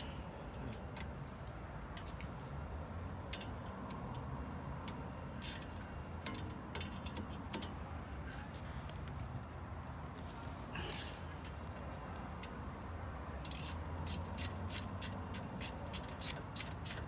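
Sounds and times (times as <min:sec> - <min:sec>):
ratchet wrench clicking: 0:03.2 - 0:07.8, 0:10.9 - 0:11.6, 0:13.4 - 0:17.0.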